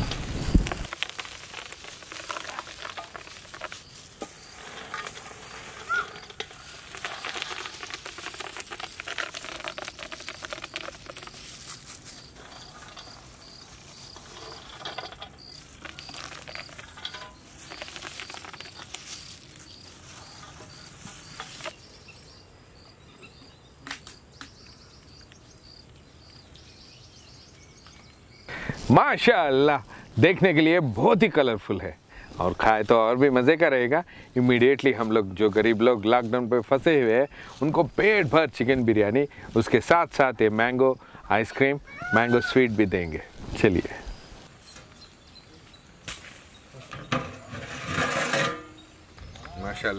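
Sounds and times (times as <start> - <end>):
crickets chirping: 0.0 - 32.5, 35.6 - 47.4
chopped nuts pattering onto liquid: 0.6 - 21.9.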